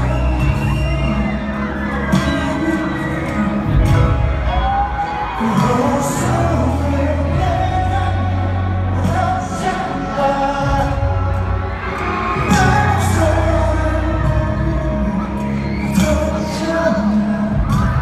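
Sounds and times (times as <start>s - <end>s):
backing track with deep bass: 0.0s - 18.0s
man singing into microphone: 0.0s - 18.0s.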